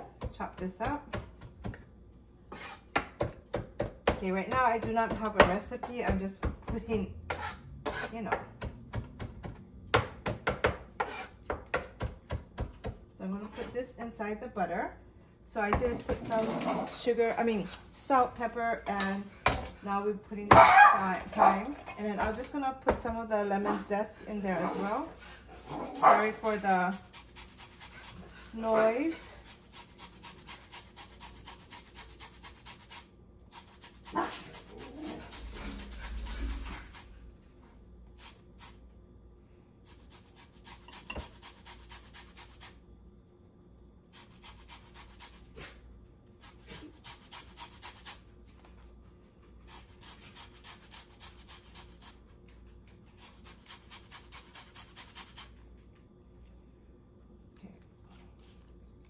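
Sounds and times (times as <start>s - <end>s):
lemon rasping on a grater: 25.6s - 37.1s, 49.7s - 52.2s, 53.2s - 55.6s.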